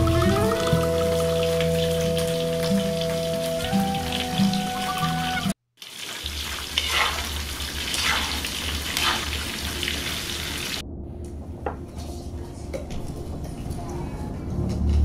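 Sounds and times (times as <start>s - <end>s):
battered vegetables deep-frying: 0.0s - 10.8s.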